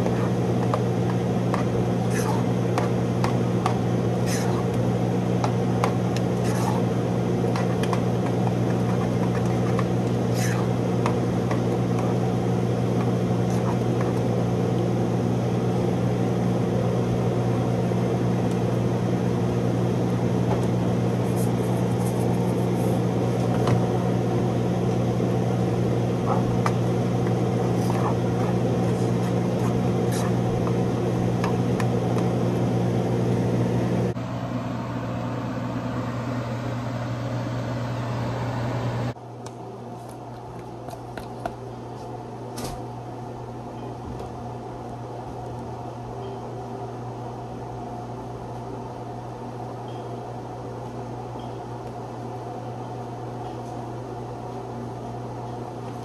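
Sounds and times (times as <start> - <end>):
kitchen appliance humming: 0.0 - 39.2.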